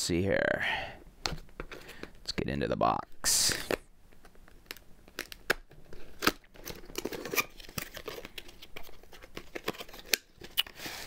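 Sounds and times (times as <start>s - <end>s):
packaging tearing and crinkling: 4.5s - 11.0s.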